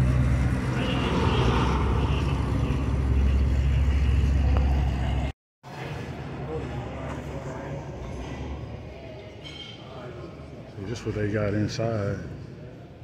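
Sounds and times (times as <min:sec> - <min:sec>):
car engine rumbling: 0:00.0 - 0:05.3.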